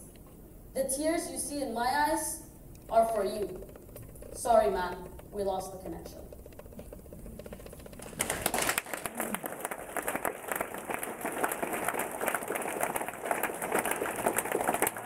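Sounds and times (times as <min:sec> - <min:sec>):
audience applauding: 0:07.9 - 0:15.0.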